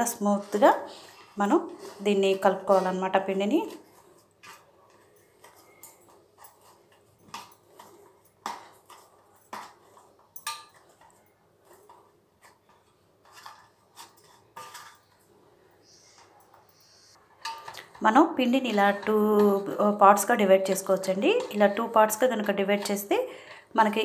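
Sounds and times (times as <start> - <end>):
light clinks and scrapes on metal plate: 4.4 - 11.9, 12.6 - 15.3.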